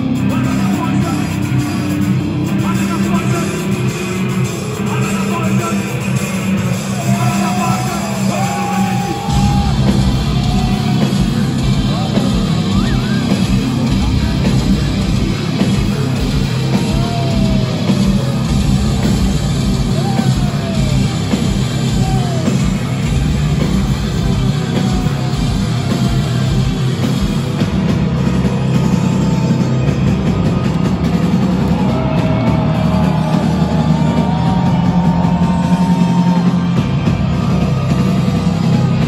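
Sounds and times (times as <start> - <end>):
metal band playing live: 0.0 - 39.0.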